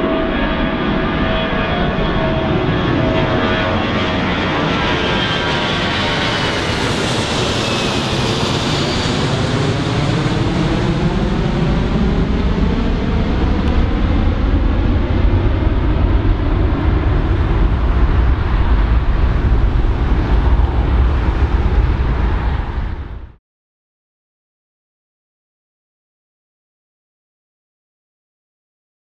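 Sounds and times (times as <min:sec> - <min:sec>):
jet engines whine passing: 0:00.0 - 0:23.4
low rumble: 0:10.3 - 0:23.4.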